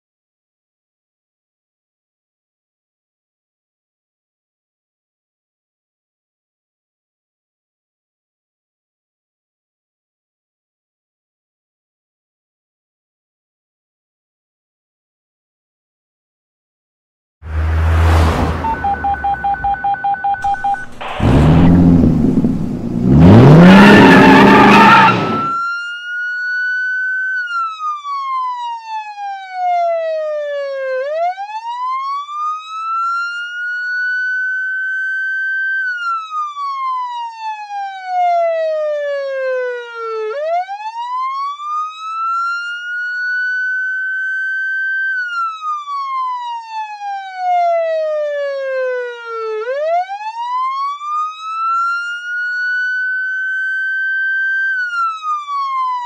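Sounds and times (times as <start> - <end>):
police car siren wailing: 17.6 - 56.0.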